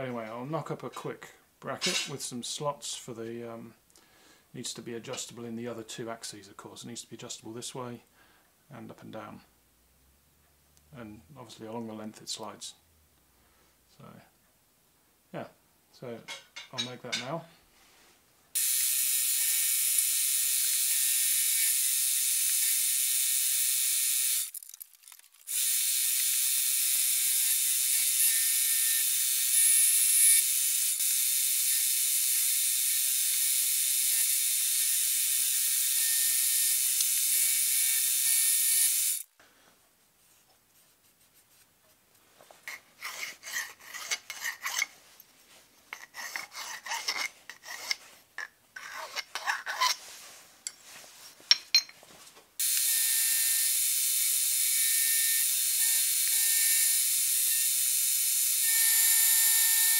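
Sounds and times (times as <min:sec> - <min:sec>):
hand file scraping metal edge: 0:42.7 - 0:45.0, 0:45.9 - 0:50.0.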